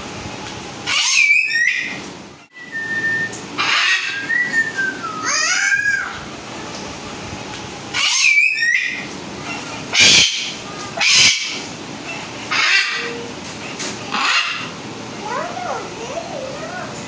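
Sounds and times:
cockatoos screeching: 0.9 - 2.0, 3.6 - 6.2, 8.0 - 9.0, 9.9 - 13.2, 14.2 - 14.7
soft warbling bird calls: 2.8 - 6.2, 7.9 - 13.3, 14.1 - 14.8.

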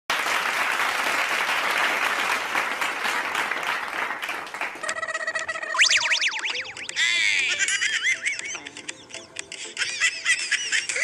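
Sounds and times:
applause: 0.1 - 5.1
steady pitched tone: 5.1 - 7.5.

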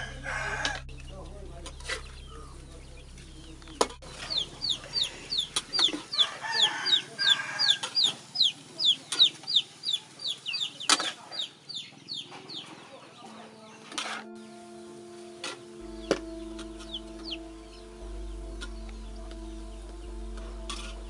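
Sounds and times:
chicks peeping: 0.0 - 21.0.

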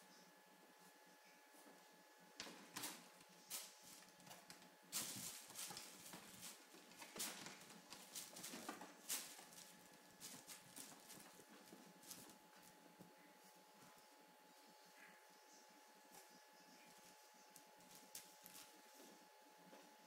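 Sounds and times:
kitten paws tapping on wire mesh: 2.4 - 13.1
claws scratching and rustling mesh: 2.5 - 13.1, 16.8 - 19.1.

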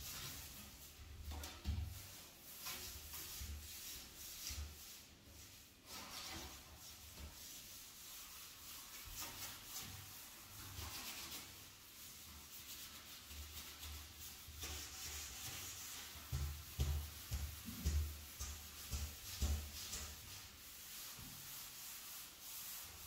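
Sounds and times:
sponge scrubbing glass door: 0.0 - 23.0.

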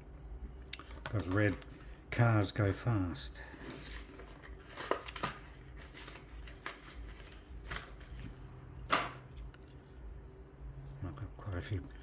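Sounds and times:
plastic packaging crackling: 3.4 - 9.6.

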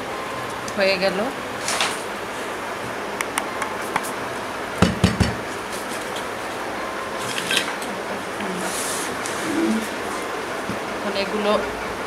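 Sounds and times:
heavy knocks on steel plate: 4.8 - 5.4.

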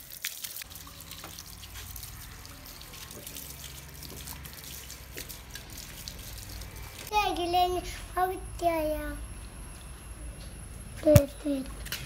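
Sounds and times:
hose water splashing: 0.0 - 7.1
water drips and splatters: 0.0 - 7.1
low steady hum: 0.6 - 12.0.

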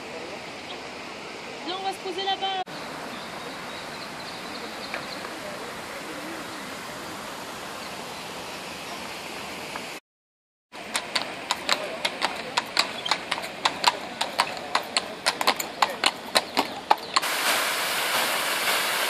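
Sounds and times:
fountain water splashing: 0.0 - 10.0, 10.8 - 19.0
horse hooves on stone: 10.8 - 19.0.

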